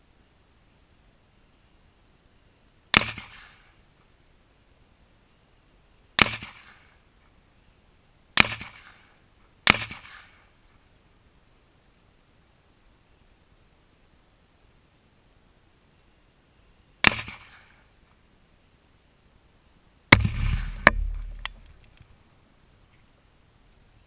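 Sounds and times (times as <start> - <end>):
rifle shots cracking: 8.4 - 9.0, 9.7 - 10.3, 20.1 - 21.8.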